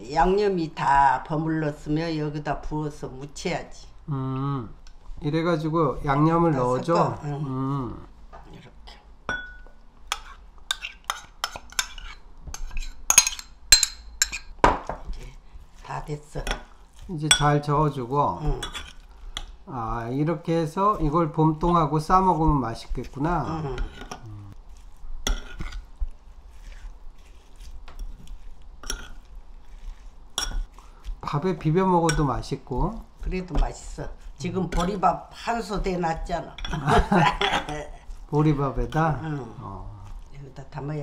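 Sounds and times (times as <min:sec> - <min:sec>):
spoon clinking on ceramic bowl: 0:09.3 - 0:12.1, 0:12.7 - 0:14.9, 0:17.3 - 0:17.6, 0:30.4 - 0:30.7
soft wet squishing: 0:15.1 - 0:41.0.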